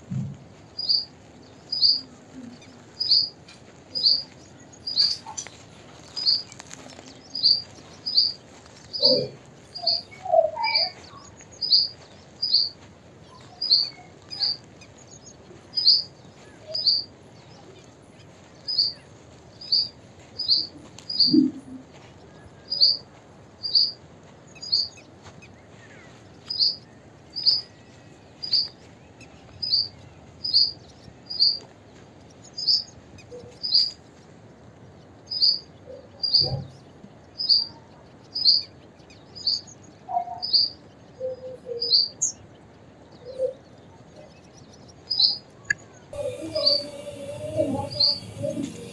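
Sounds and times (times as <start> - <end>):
bird chirping: 0.0 - 34.6, 35.3 - 48.9.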